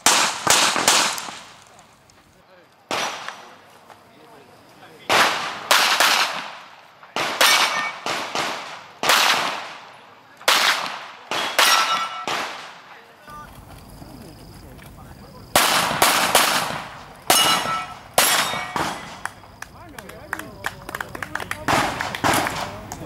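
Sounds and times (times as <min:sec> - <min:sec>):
pistol shots: 0:00.0 - 0:01.7, 0:02.9 - 0:03.6, 0:05.1 - 0:12.9, 0:15.6 - 0:19.4, 0:21.6 - 0:22.8
metallic ring of steel targets: 0:07.4 - 0:08.0, 0:11.5 - 0:12.3, 0:17.3 - 0:19.2.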